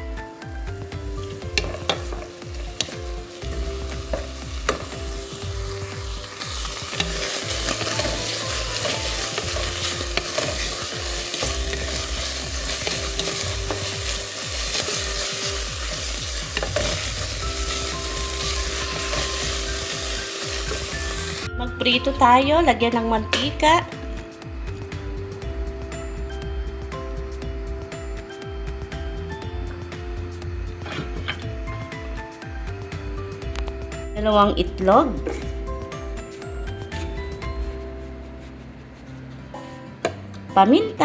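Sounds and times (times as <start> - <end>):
food sizzling in oil: 0.0 - 37.2
wooden spoon scraping pot: 6.6 - 19.9.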